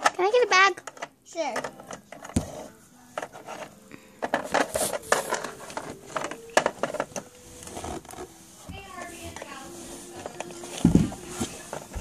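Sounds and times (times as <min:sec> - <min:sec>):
plastic toys clicking on wood: 0:00.0 - 0:02.4.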